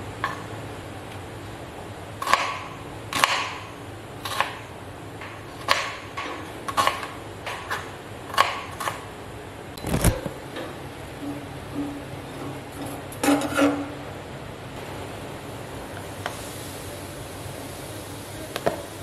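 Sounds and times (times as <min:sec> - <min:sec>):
knife chopping on cutting board: 0:02.2 - 0:03.6, 0:04.2 - 0:04.6, 0:05.6 - 0:09.0.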